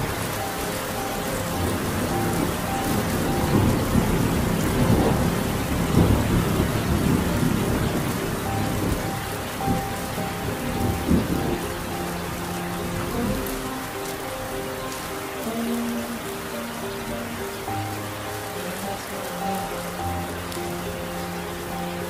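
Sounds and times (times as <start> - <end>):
rolling thunder: 0.0 - 14.9
faint held music notes: 0.0 - 22.0
heavy rain: 0.0 - 22.0.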